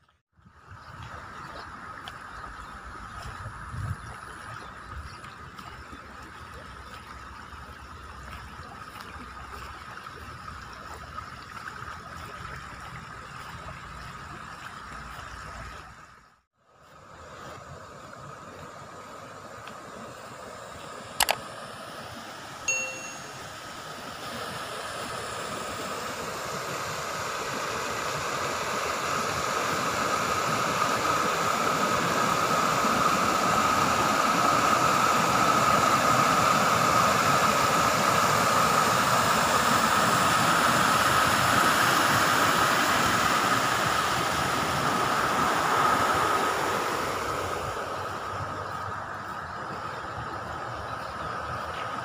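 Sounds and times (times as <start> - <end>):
water rushing over weir: 0.0 - 16.2, 16.8 - 52.0
high-pitched blip: 22.7 - 23.4.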